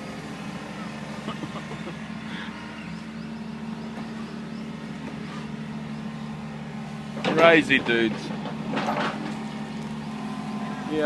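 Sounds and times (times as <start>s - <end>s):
diesel engine running: 0.0s - 11.0s.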